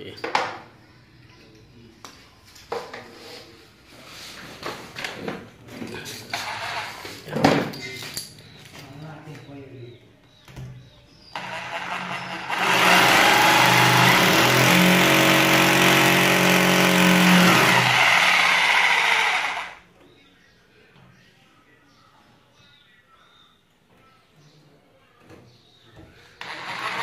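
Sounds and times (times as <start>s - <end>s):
hammer drill boring into wall: 11.4s - 19.8s, 26.4s - 27.0s.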